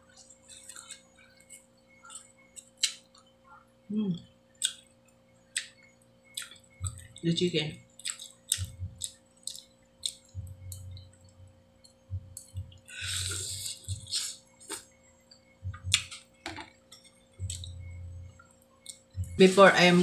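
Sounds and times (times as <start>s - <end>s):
person chewing with mouth clicks: 0.1s - 3.2s, 4.6s - 4.8s, 5.6s - 7.2s, 8.0s - 11.1s, 12.3s - 16.2s, 17.0s - 19.4s.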